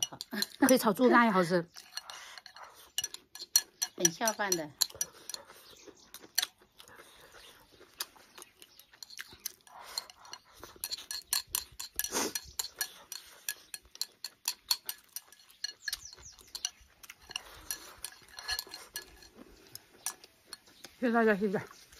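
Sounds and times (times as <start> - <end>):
chewing: 0.0 - 21.0
chopsticks clicking on a bowl: 1.8 - 5.5, 8.0 - 21.0.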